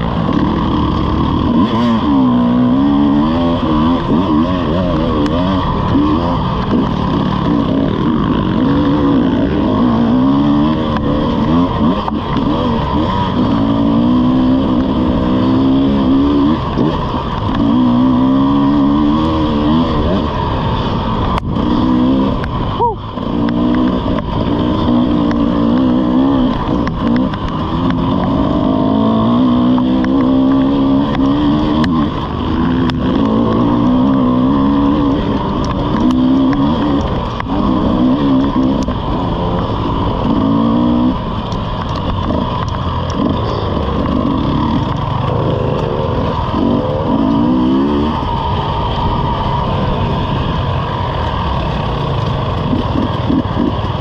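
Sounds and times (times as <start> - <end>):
dirt bike engine: 0.0 - 54.0
sharp clicks and knocks: 23.3 - 28.4, 35.2 - 47.1.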